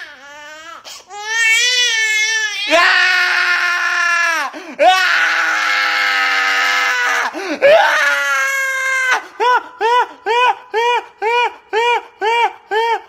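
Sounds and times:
man screaming like a crying baby: 2.6 - 13.0.

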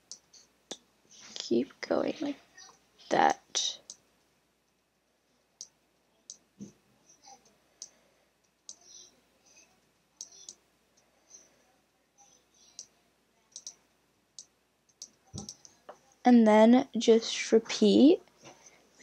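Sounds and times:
computer mouse clicking: 3.8 - 4.0, 13.5 - 13.8.

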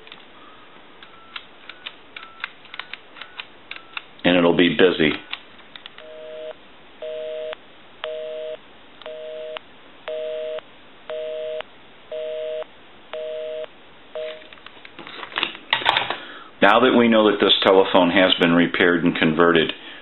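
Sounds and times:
telephone busy signal: 6.0 - 14.4.

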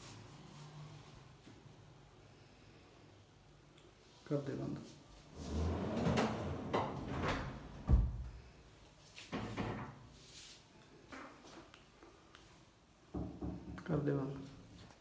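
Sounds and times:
wardrobe unit sliding on runners: 5.3 - 6.6
wardrobe door swishing and knocking: 5.5 - 8.2.

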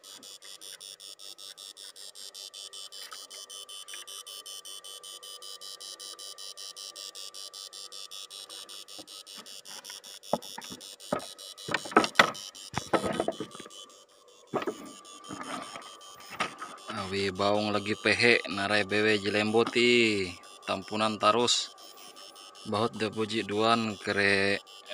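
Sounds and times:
electric fish shocker buzzing: 0.0 - 24.9
high whine: 14.6 - 24.9.

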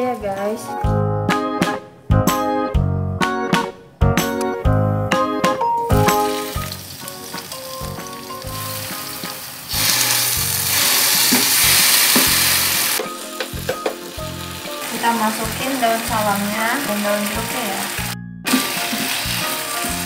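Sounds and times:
paste sizzling in hot oil: 6.0 - 20.0.

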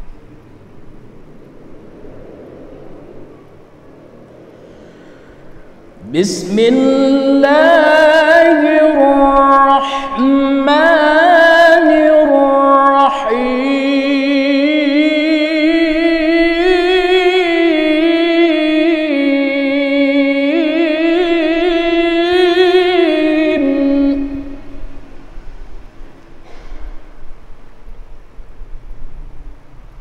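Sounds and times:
man reciting in melodic chant: 6.0 - 24.6.

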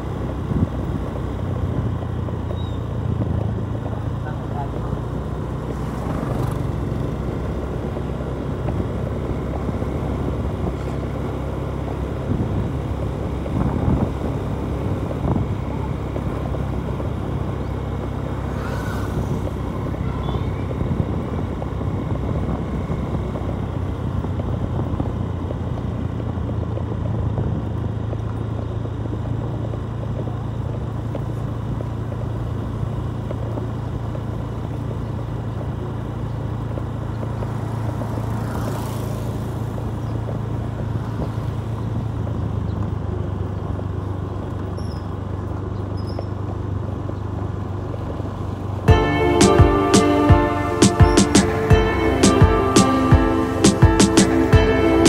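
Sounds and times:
motorcycle engine cruising: 0.0 - 55.0
road and wind noise: 0.0 - 55.0
brief rushing sounds: 18.5 - 19.7.

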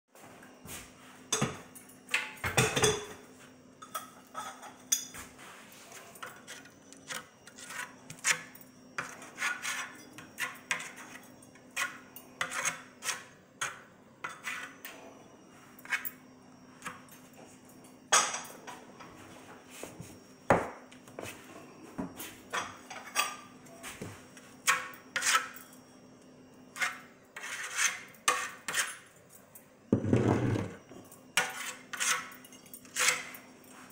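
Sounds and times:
tile scraping: 5.8 - 11.2, 11.8 - 13.3, 26.8 - 29.0, 30.0 - 30.8, 31.4 - 33.3.

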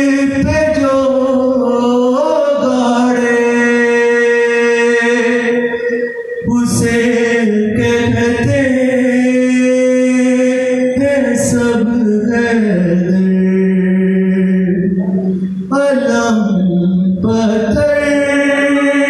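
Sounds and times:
man singing unaccompanied: 0.0 - 19.0.

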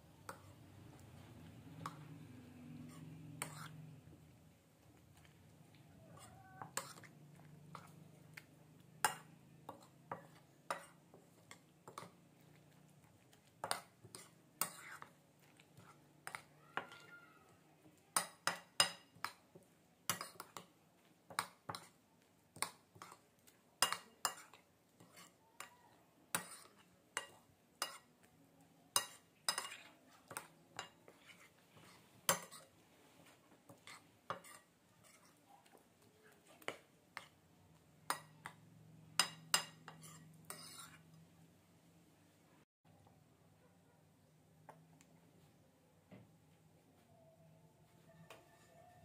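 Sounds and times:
stirring wet mixture: 0.0 - 41.3
metal spoon clinking in ceramic bowl: 23.8 - 25.7, 29.0 - 31.0, 39.2 - 41.0.

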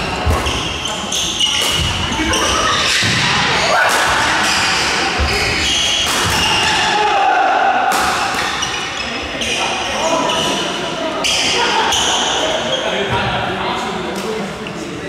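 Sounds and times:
echoing voices: 0.0 - 15.0
racquets hitting shuttlecock: 1.5 - 6.8, 7.9 - 8.9.

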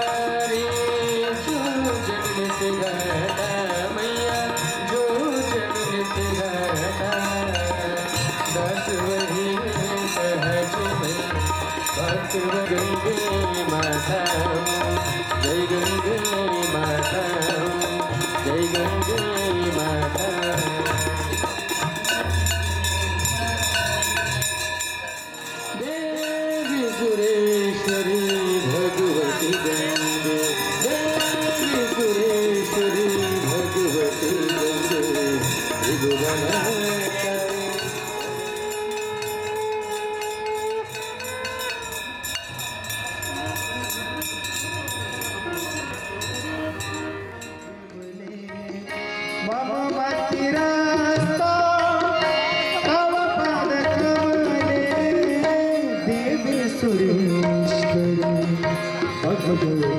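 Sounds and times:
bells ringing: 0.0 - 59.9
clanging percussion: 0.0 - 59.9.

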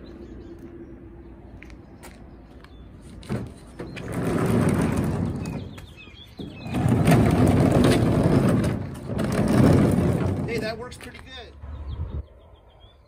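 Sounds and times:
bird chirping: 0.0 - 4.2, 5.3 - 7.2, 11.5 - 13.0
dolly wheels rolling over asphalt: 2.5 - 11.5.

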